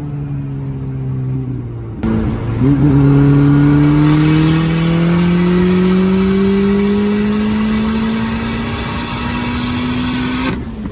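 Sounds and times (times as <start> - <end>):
car engine accelerating: 0.0 - 10.9.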